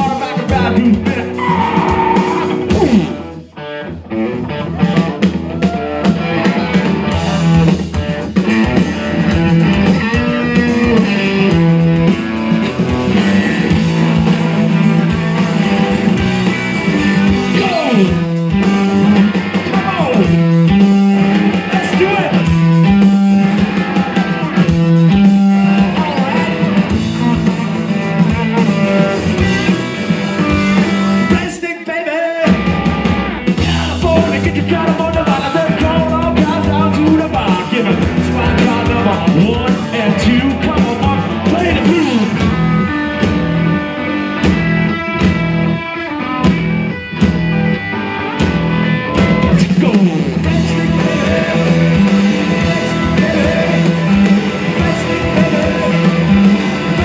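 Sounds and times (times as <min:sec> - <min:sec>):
live rock band playing: 0:00.0 - 0:57.0
person singing: 0:33.6 - 0:42.5, 0:49.5 - 0:57.0.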